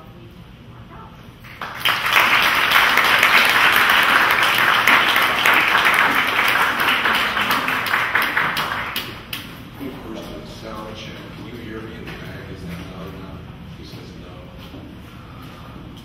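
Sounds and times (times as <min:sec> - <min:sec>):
audience applauding: 0:01.4 - 0:09.5.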